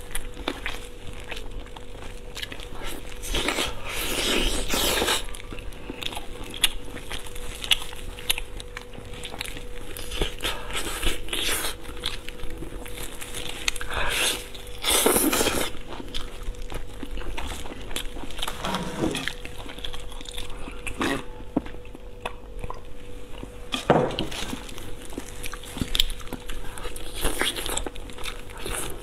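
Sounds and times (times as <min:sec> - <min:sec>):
person chewing and crunching: 0:00.0 - 0:29.0.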